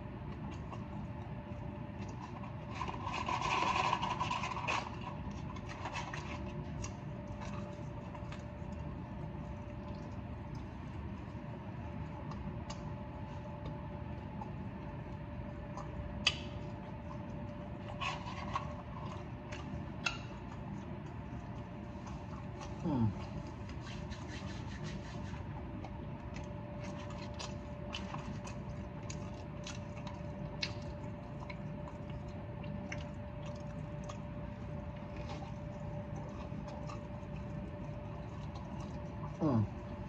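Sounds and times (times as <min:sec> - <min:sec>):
steady low hum: 0:00.0 - 0:40.0
person eating: 0:15.6 - 0:40.0.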